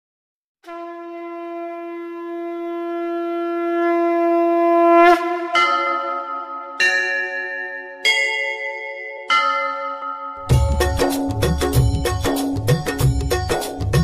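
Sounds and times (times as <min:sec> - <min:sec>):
conch shell blown: 0:00.6 - 0:06.3
bell struck and ringing: 0:05.5 - 0:12.2.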